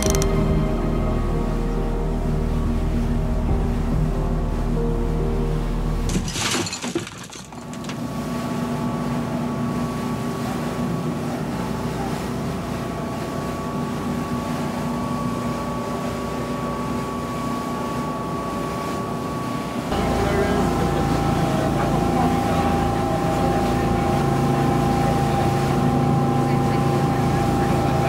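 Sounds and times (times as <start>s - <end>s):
boat engines running: 0.0s - 28.0s
water churning in wake: 5.8s - 28.0s.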